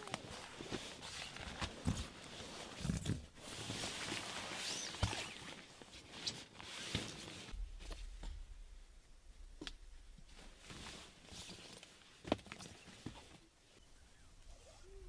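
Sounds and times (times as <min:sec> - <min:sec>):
rustles and knocks: 0:06.8 - 0:13.4
footsteps: 0:07.5 - 0:11.6.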